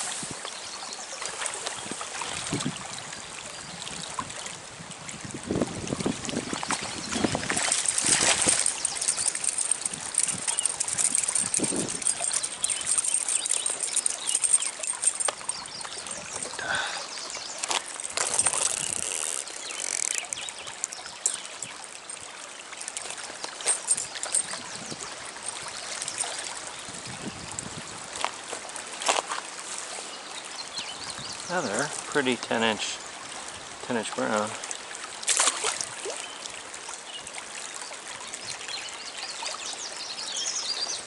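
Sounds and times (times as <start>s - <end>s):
stream water trickling: 0.0s - 41.0s
small clicks and knocks: 17.6s - 21.8s.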